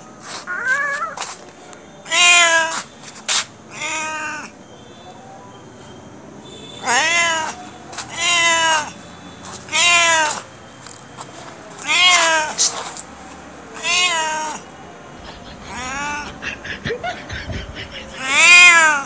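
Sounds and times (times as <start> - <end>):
cat meowing: 0.5 - 1.3, 2.0 - 2.8, 3.7 - 4.5, 6.8 - 8.9, 9.7 - 10.4, 11.8 - 12.7, 13.7 - 19.0.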